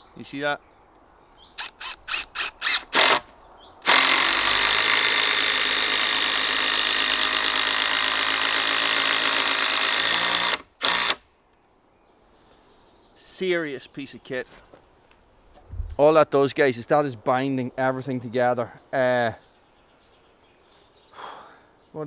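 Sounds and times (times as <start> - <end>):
impact driver driving screw: 1.6 - 11.2.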